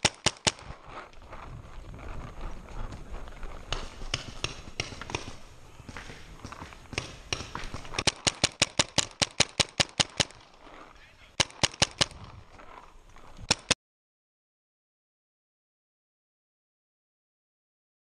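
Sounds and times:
paintball marker firing pops: 3.7 - 6.1, 6.9 - 10.4, 11.4 - 12.3.

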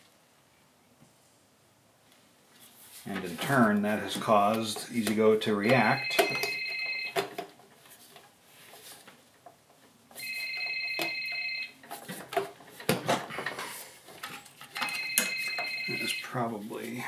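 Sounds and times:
electronic ringing trill: 5.6 - 7.2, 10.2 - 11.8, 14.8 - 16.4.

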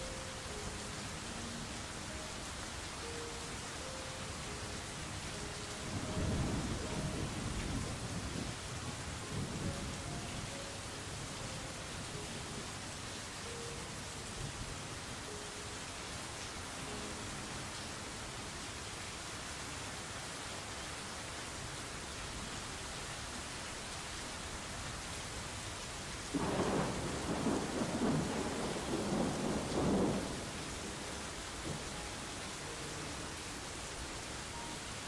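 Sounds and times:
steady rain hiss: 0.0 - 35.0
thunder rolling: 26.4 - 30.7.

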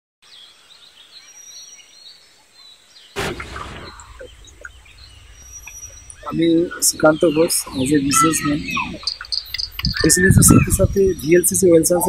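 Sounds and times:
birds chirping: 0.2 - 12.0
rush of noise: 3.2 - 11.3
steady low rumble: 3.2 - 12.0.

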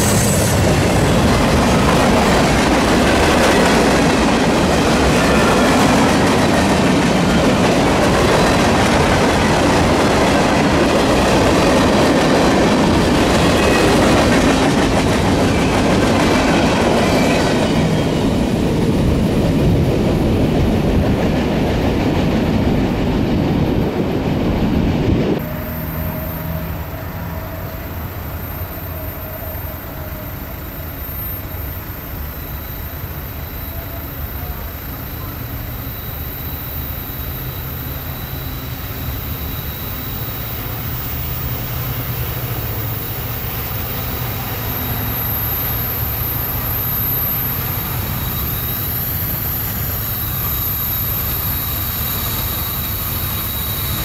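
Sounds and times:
freight train wheels clacking: 0.0 - 25.7.

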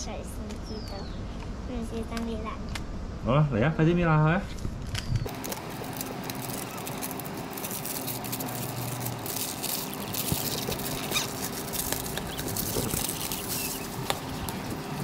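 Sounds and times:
plastic wrapper crinkling and tearing: 5.3 - 15.0.

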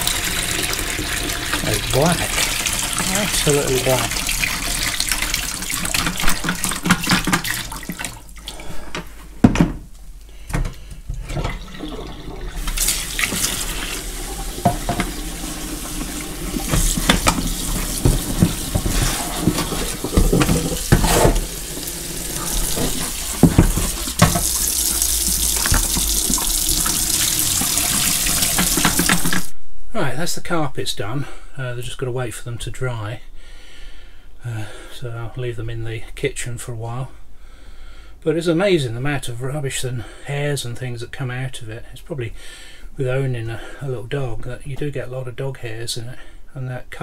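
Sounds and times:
water splashing into metal sink: 0.0 - 8.6, 11.2 - 29.5
kitchen tap running: 0.0 - 8.7, 11.1 - 29.5
plastic tank knocking on sink: 14.3 - 24.6.

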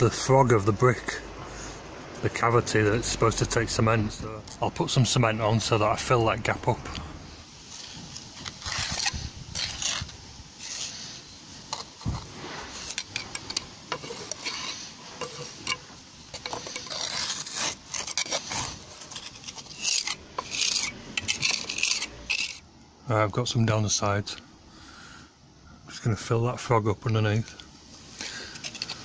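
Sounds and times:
trowel scraping mortar: 7.7 - 22.6, 28.2 - 29.0
metal clicking on masonry: 12.9 - 18.2.

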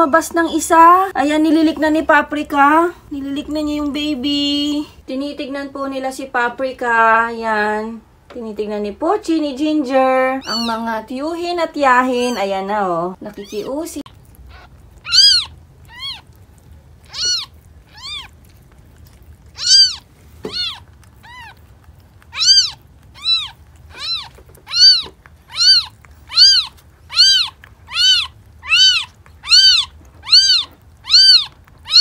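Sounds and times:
kitten mewing: 10.4 - 10.9, 13.3 - 32.0.

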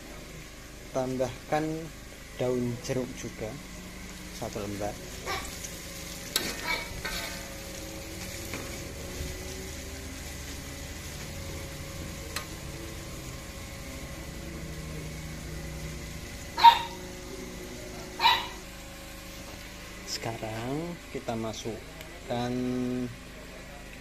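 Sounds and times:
paste sizzling in hot oil: 3.1 - 21.9.

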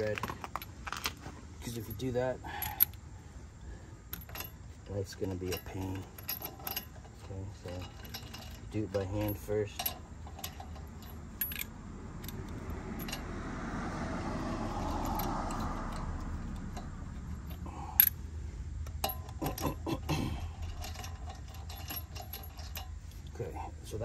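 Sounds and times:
metal nuts clinking: 4.1 - 13.4, 14.3 - 24.0.

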